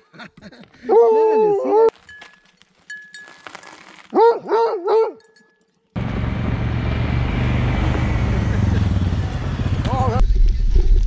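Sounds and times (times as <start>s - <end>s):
dog yelping barks: 4.1s - 5.2s.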